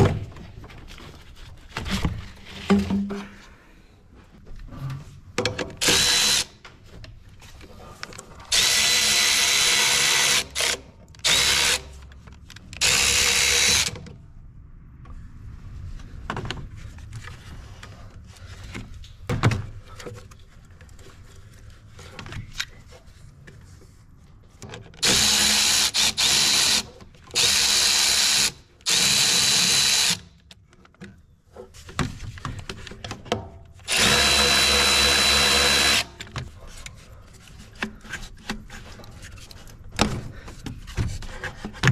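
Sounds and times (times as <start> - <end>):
electric ratchet spinning: 25.0 - 30.2, 33.9 - 36.1.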